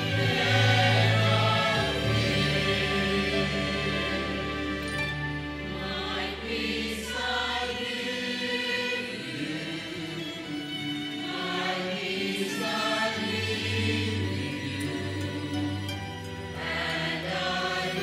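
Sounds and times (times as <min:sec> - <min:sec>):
instrumental accompaniment: 0:00.0 - 0:07.9
church choir singing: 0:00.0 - 0:18.0.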